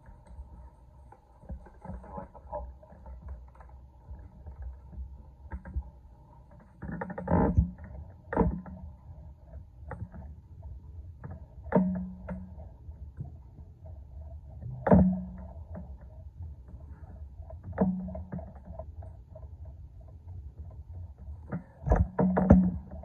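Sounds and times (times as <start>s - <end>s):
thumps: 21.4s - 23.0s.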